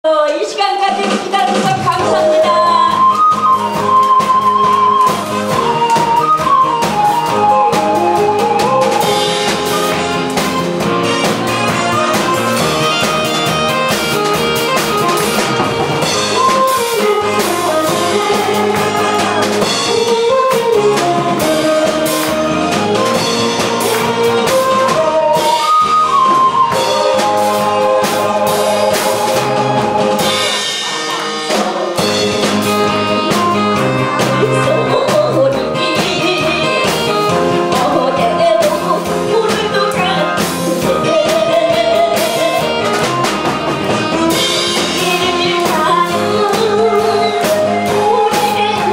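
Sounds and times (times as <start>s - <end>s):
woman singing into a microphone: 0.1s - 5.0s, 33.1s - 43.0s, 44.8s - 48.9s
backing track with drums: 0.1s - 48.9s.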